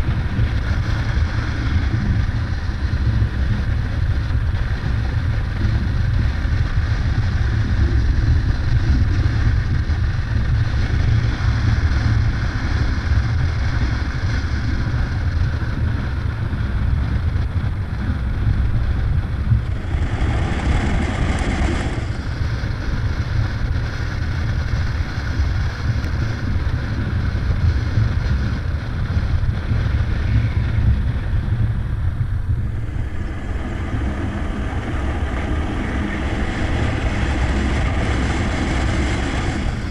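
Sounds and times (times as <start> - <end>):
motorcycle engine drone: 0.0 - 39.9
wind rushing on microphone: 0.0 - 39.9
loud whoosh: 19.4 - 23.2, 30.5 - 39.9.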